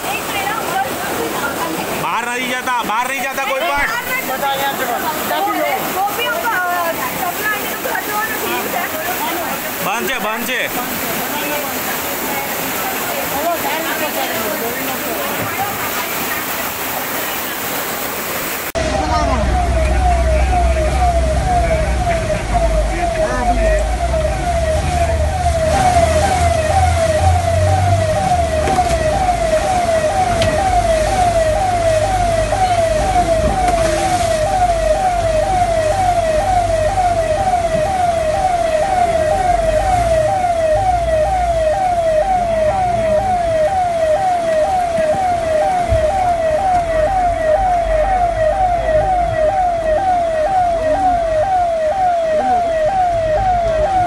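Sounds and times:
siren sweeping up and down: 0:18.8 - 0:54.0.

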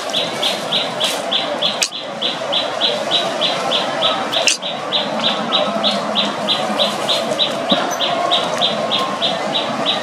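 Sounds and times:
sharp click: 0:04.4 - 0:04.7.

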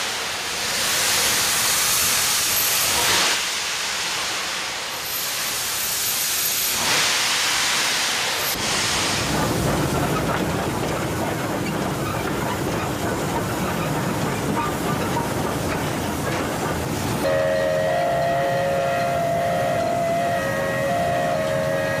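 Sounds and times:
steam locomotive running: 0:00.0 - 0:22.0
steam whistle chord: 0:17.2 - 0:22.0.

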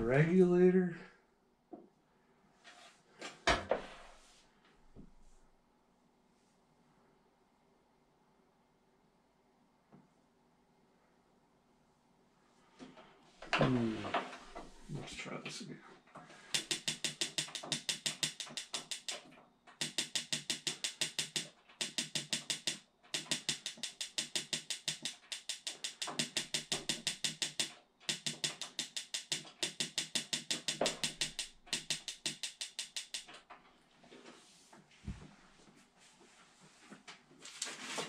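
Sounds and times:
heater igniter ticking rapidly: 0:16.6 - 0:33.4.

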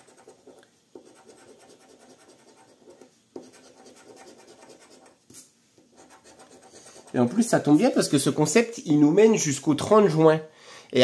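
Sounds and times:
coin scraping scratch card: 0:00.0 - 0:05.2, 0:06.0 - 0:08.0.

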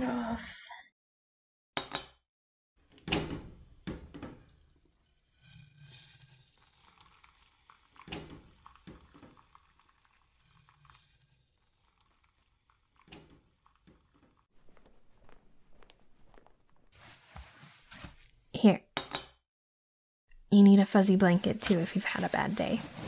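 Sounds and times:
liquid pouring and stirring: 0:03.4 - 0:17.8
cups and utensils clinking: 0:05.6 - 0:14.4.

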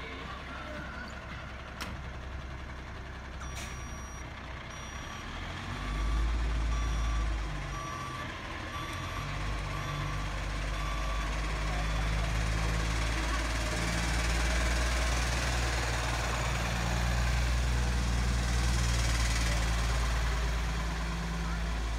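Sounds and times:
diesel engine rumbling: 0:00.0 - 0:21.9
reversing alarm beeping: 0:03.4 - 0:12.3.

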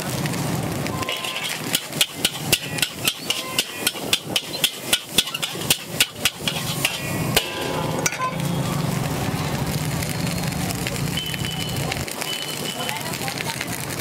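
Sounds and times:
ladle clanging on wok: 0:01.0 - 0:08.5.

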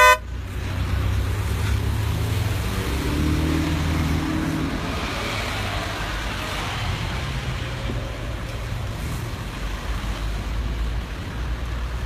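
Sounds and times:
low engine hum of idling vehicles: 0:00.0 - 0:03.0, 0:04.4 - 0:12.0
road traffic noise: 0:00.0 - 0:12.0.

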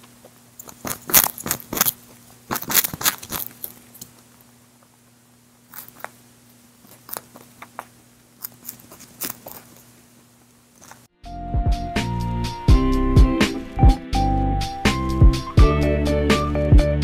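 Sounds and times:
rabbit chewing food: 0:00.0 - 0:11.1.

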